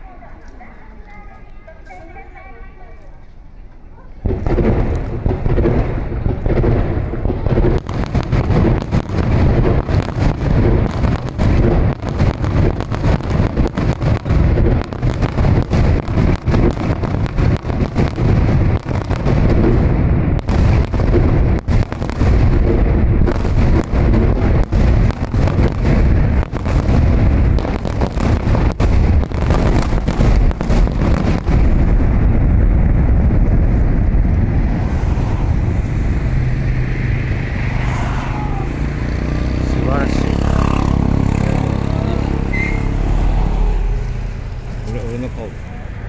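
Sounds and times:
sharp firework pops: 0:04.2 - 0:36.2
firework shells booming: 0:04.2 - 0:45.6.

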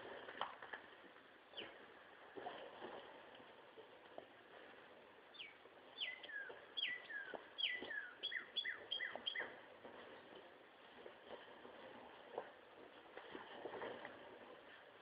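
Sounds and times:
songbird whistling: 0:05.3 - 0:09.5.

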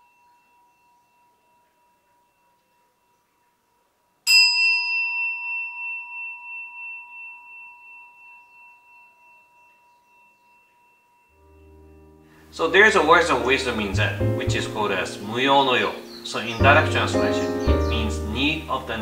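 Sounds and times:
bowl bell ringing: 0:00.0 - 0:03.5, 0:04.2 - 0:13.3.

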